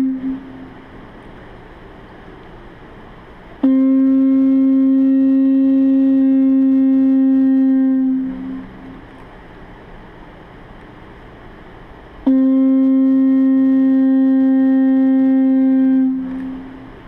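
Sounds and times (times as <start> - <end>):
low horn-like tone: 0.0 - 0.8, 3.6 - 9.0, 12.2 - 17.0.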